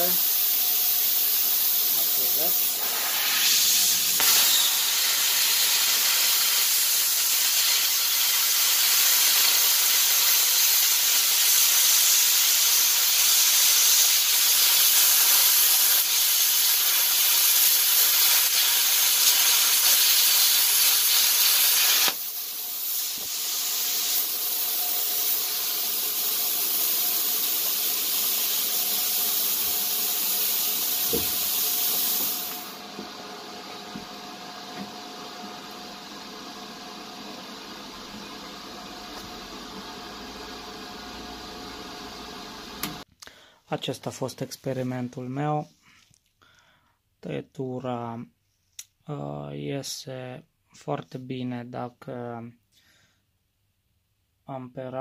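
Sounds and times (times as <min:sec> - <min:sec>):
plasma cutter arc hissing: 0:00.0 - 0:32.9
air hissing: 0:00.0 - 0:33.0.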